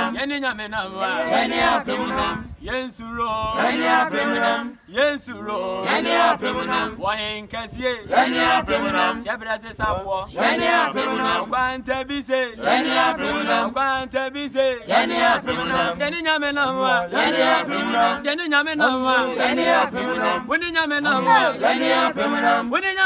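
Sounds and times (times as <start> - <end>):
choir singing unaccompanied: 1.0 - 2.5, 3.6 - 4.8, 5.4 - 7.0, 8.0 - 9.2, 10.4 - 11.8, 12.6 - 22.7.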